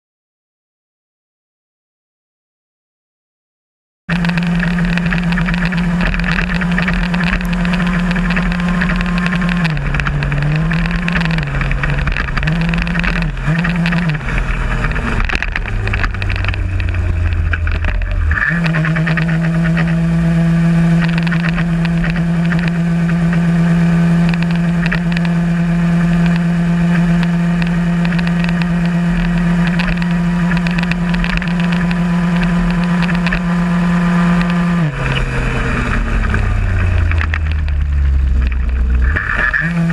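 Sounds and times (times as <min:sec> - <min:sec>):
moped engine running: 0:04.1 - 0:39.9.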